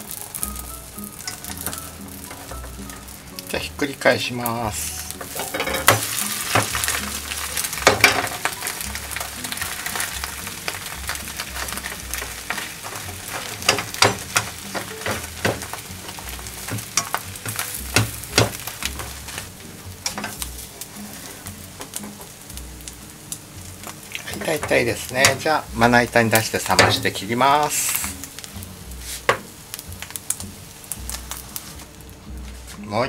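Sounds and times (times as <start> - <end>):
egg sizzling in a frying pan: 0.0 - 32.7
spatula scraping a pan: 5.0 - 22.3.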